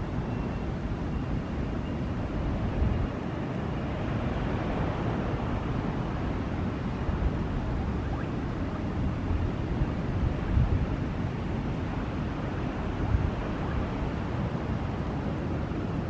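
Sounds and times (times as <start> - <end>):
jet engines rumbling: 6.8 - 10.2.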